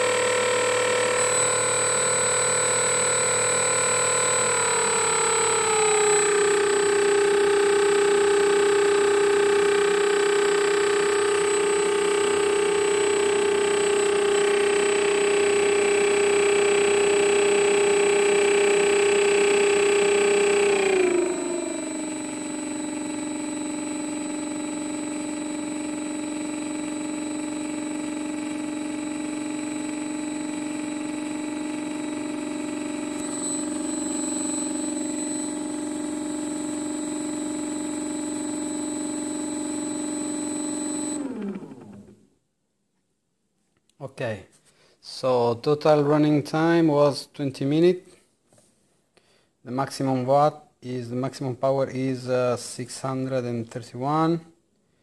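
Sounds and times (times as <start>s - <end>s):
electric motor whine: 0.0s - 42.2s.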